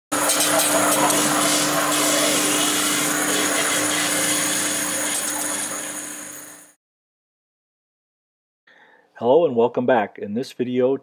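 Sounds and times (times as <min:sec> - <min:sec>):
loud machine hiss: 0:00.2 - 0:06.7.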